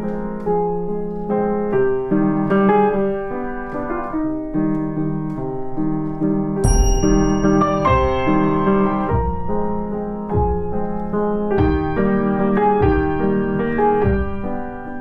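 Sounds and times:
slow piano music: 0:00.0 - 0:15.0.

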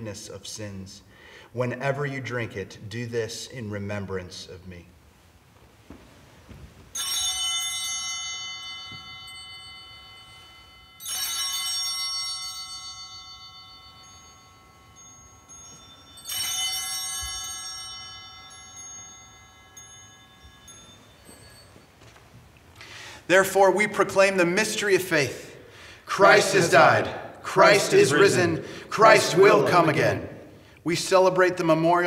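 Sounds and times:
altar bell ringing: 0:06.9 - 0:23.6, 0:25.8 - 0:30.7.

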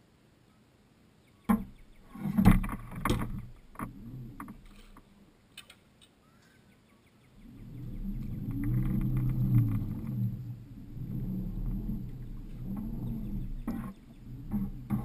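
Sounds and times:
faint clicks: 0:02.6 - 0:06.8, 0:07.4 - 0:15.0.

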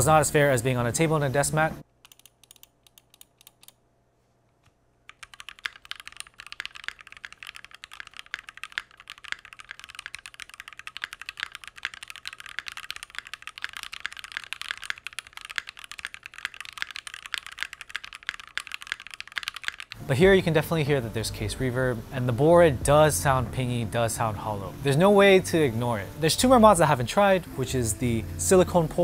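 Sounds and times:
mechanical keyboard typing: 0:02.0 - 0:03.8, 0:05.1 - 0:20.0.

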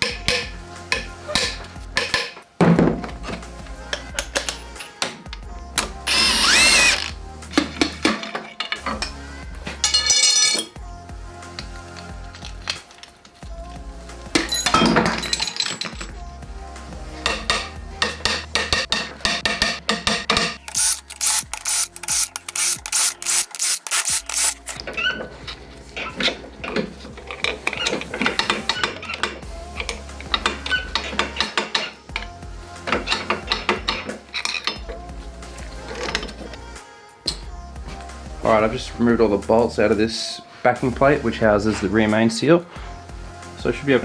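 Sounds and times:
cordless power tool whirring: 0:06.1 - 0:07.1, 0:20.7 - 0:24.6
metal clinks and scraping: 0:09.8 - 0:10.8, 0:14.4 - 0:16.2, 0:20.4 - 0:29.4.

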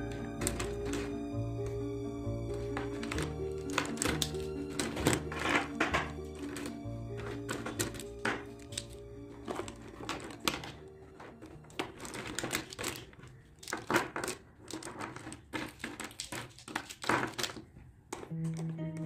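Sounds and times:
background music: 0:00.0 - 0:12.6, 0:18.3 - 0:19.0
plastic markers clattering: 0:00.0 - 0:19.0.

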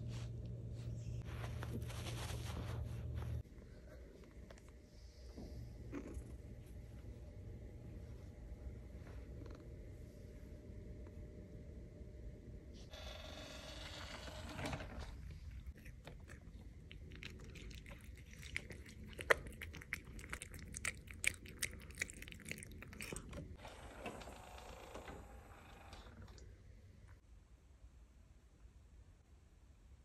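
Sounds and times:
cat crunching dry kibble: 0:15.5 - 0:23.4.

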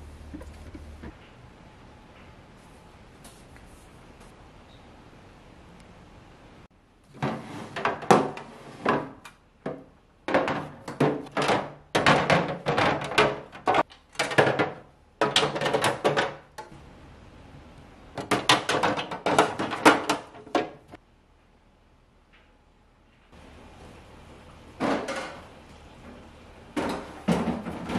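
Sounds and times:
plastic drawers clattering: 0:07.1 - 0:16.5, 0:18.2 - 0:20.9, 0:26.8 - 0:27.9.

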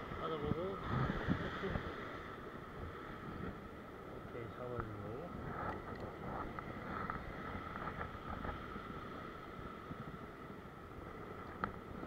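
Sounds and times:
ocean surf breaking on rocks: 0:00.0 - 0:12.0
wind buffeting microphone: 0:00.0 - 0:12.0.

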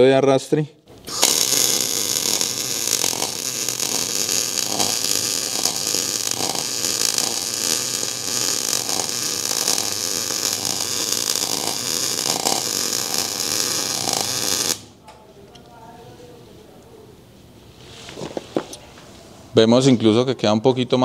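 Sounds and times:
welding arc crackling hiss: 0:01.0 - 0:15.0.

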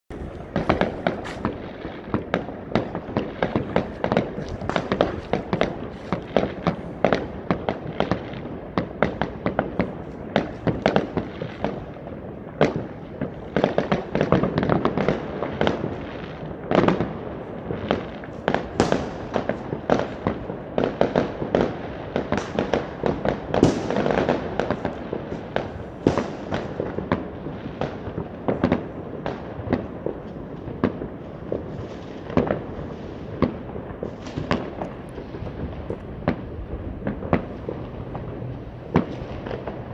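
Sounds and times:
sharp firework reports: 0:00.1 - 0:08.2
fireworks bangs and crackles: 0:00.1 - 0:39.9.

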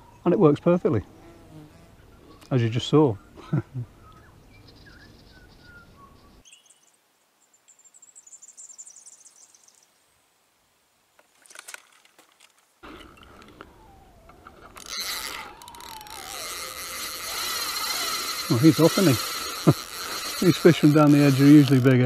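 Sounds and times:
faint high bird chirps: 0:04.0 - 0:09.9
fishing reel rushing buzz: 0:13.8 - 0:22.0.

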